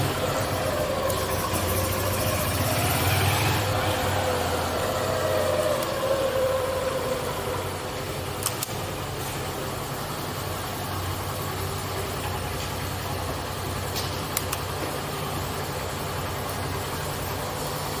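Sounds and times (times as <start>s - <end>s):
motorcycle engine idling: 0.0s - 18.0s.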